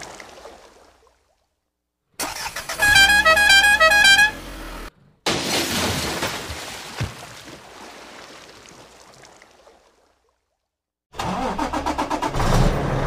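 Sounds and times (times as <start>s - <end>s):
musical horn beeping tune: 2.3s - 4.9s.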